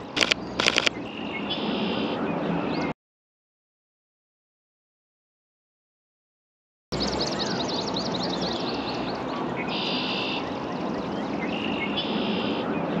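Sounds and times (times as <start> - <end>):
birds chirping: 0.0 - 3.0, 7.0 - 13.0.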